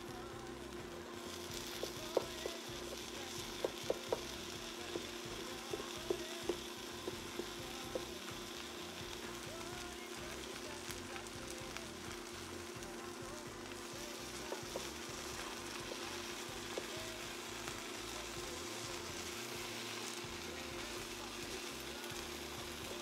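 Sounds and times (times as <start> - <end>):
bread sizzling in a pan: 0.0 - 23.0
utensils tapping a pan: 1.6 - 8.5.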